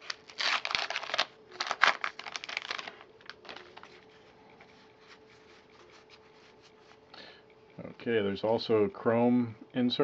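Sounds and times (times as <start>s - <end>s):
plastic wrapper crinkling: 0.0s - 4.1s
cards rustling: 0.0s - 6.8s.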